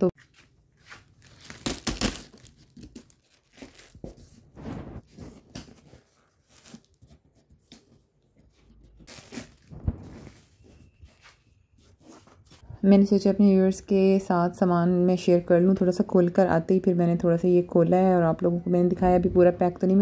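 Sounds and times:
packing tape tearing off cardboard: 1.0s - 7.9s, 9.0s - 10.7s.

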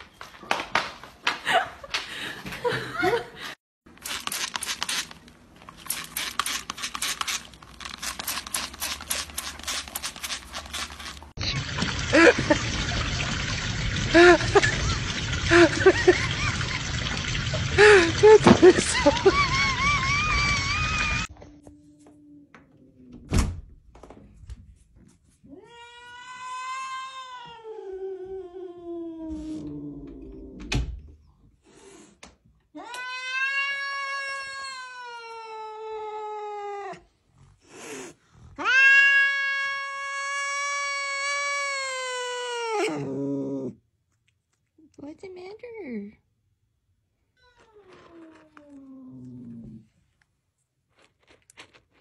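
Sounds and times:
spray bottle squirting: 4.0s - 11.3s
running water rushing: 11.4s - 20.7s
cat yowling: 38.6s - 43.2s.

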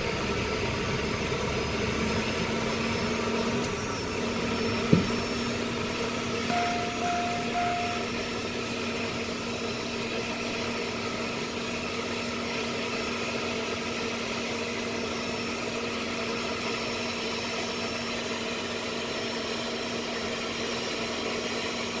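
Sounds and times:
jet engine idling: 0.0s - 20.6s
short beeps: 6.5s - 8.3s.

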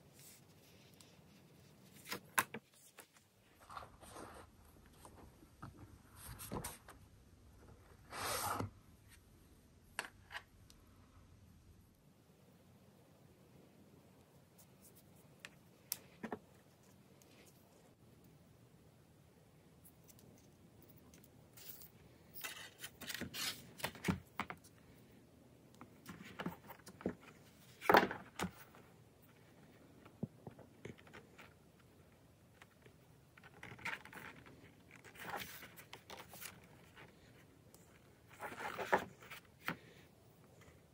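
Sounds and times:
notebook rustling: 0.1s - 6.8s, 25.8s - 40.0s.

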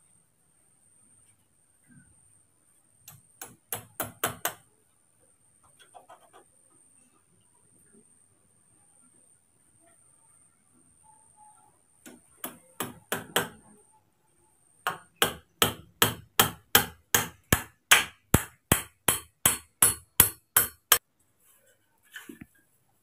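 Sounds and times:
hammer striking bamboo: 3.1s - 4.6s, 12.1s - 13.6s, 14.9s - 21.0s.

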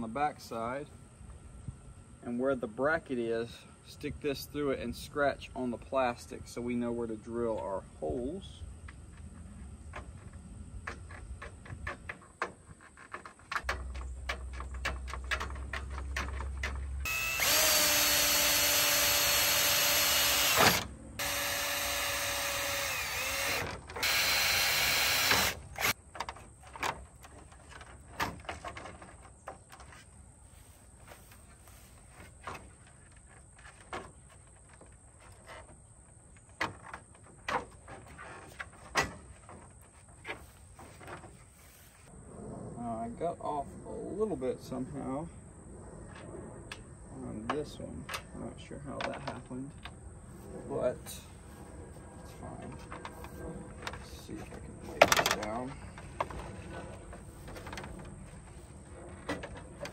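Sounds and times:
cordless drill whining: 17.0s - 26.0s.

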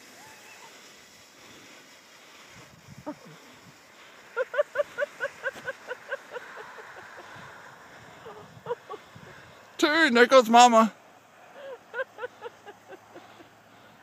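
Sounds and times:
faint steady hiss: 0.0s - 14.0s
person laughing: 4.3s - 9.4s, 11.6s - 13.8s.

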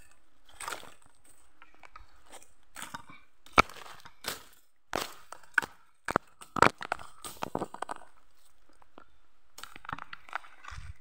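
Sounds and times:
footsteps crunching on leaves: 0.5s - 1.5s, 3.6s - 5.7s.

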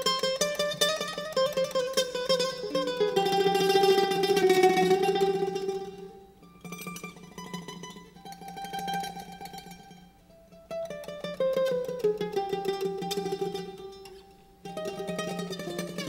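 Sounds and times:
plucked lute tremolo melody: 0.0s - 16.0s.

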